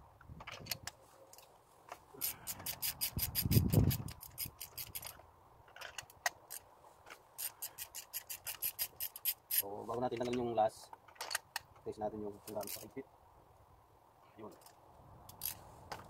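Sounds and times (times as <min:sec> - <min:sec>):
hand ratchet clicking: 0:02.2 - 0:05.2, 0:07.4 - 0:09.6, 0:15.3 - 0:15.6.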